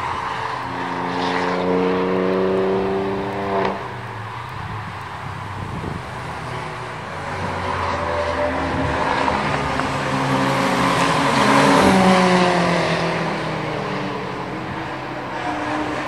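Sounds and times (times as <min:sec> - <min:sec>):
race car engines passing: 0:00.0 - 0:16.0.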